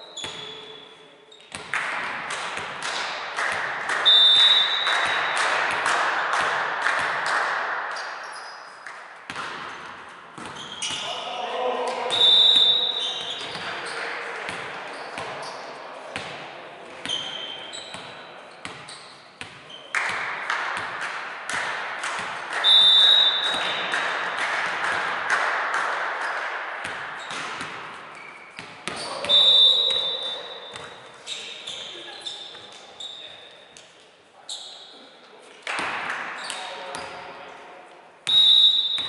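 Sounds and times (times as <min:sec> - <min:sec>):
referee's whistle blasts: 0:04.0 - 0:05.4, 0:12.1 - 0:13.4, 0:22.6 - 0:23.8, 0:29.2 - 0:30.7, 0:38.3 - 0:39.0
ball struck and bouncing: 0:08.9 - 0:11.1, 0:19.4 - 0:28.0, 0:30.7 - 0:31.0
players' voices: 0:10.9 - 0:18.6.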